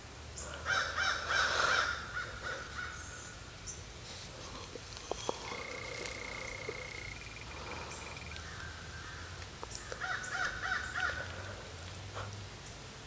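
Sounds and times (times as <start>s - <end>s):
bird calling: 4.5s - 11.4s
faint clicks: 4.6s - 8.7s.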